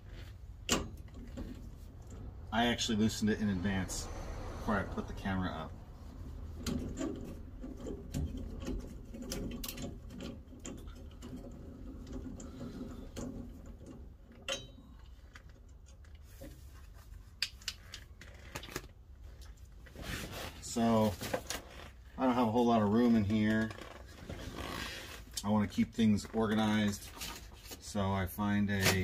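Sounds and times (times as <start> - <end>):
hand tools clicking and knocking: 6.6 - 16.0.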